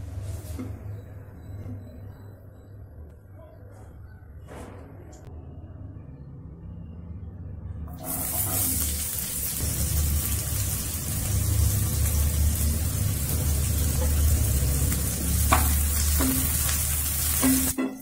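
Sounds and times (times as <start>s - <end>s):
onions sizzling in oil: 7.9s - 18.0s.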